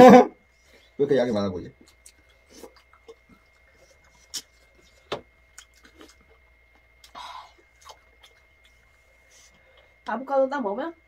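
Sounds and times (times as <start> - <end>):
people chewing and smacking: 1.7 - 10.1.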